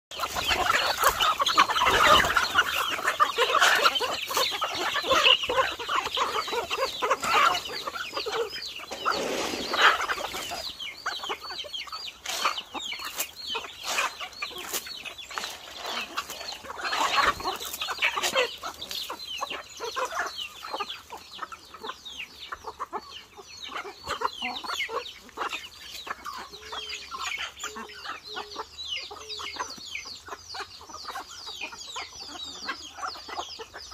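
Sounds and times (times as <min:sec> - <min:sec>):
chickens clucking: 0:00.1 - 0:33.9.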